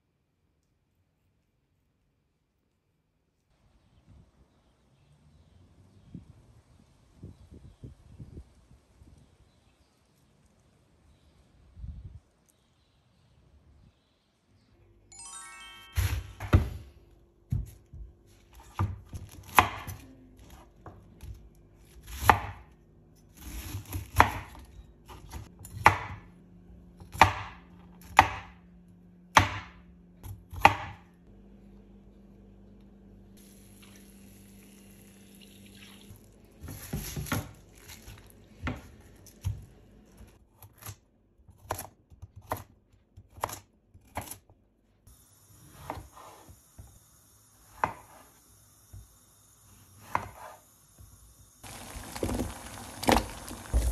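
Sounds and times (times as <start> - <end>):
knife chopping on wooden board: 18.6 - 20.0, 22.0 - 22.7, 23.4 - 26.3, 27.0 - 28.6, 29.3 - 31.1, 50.0 - 50.6.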